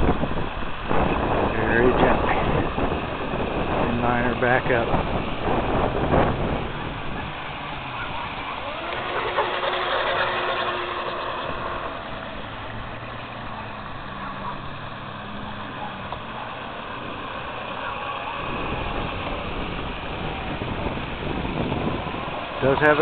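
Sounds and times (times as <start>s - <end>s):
wind buffeting microphone: 0.0s - 23.0s
small electric motor whining: 4.9s - 23.0s.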